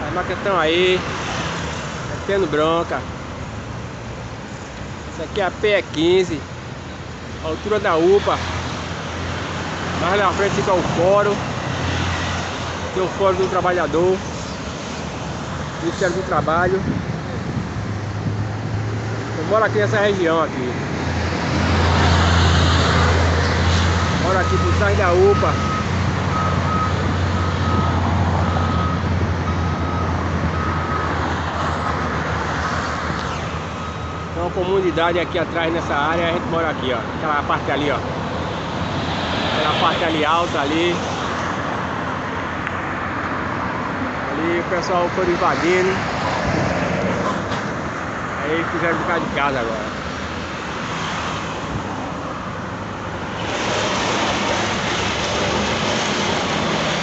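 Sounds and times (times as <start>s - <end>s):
heavy engines droning: 0.0s - 57.0s
passing road traffic: 0.0s - 57.0s
reversing alarm beeping: 24.2s - 31.2s, 33.2s - 36.6s.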